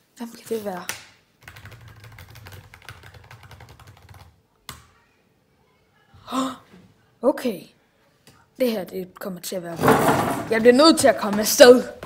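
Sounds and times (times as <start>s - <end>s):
fast typing on laptop keyboard: 1.4s - 4.4s.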